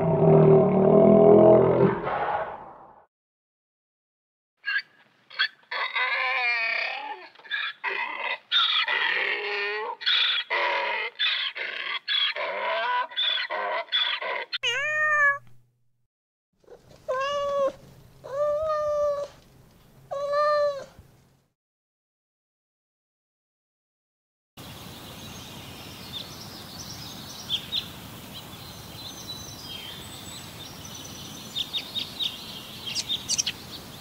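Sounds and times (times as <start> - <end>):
donkey braying: 4.6 - 14.8
kitten meowing: 14.6 - 15.5, 17.1 - 19.3, 20.1 - 20.9.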